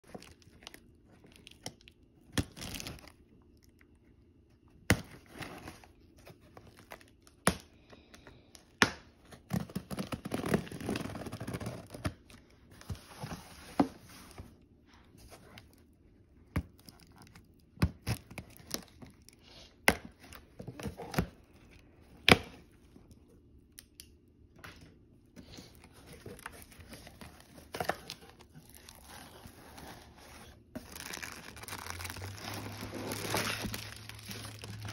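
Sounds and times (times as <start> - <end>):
packing tape tearing: 30.8 - 34.9.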